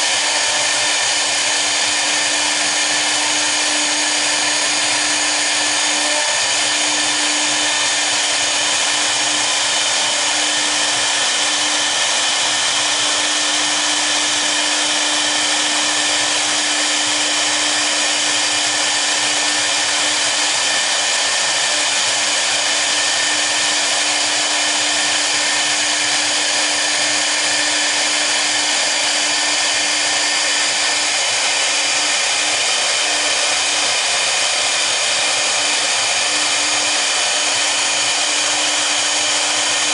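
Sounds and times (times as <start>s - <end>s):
router spindles whining: 0.0s - 39.9s.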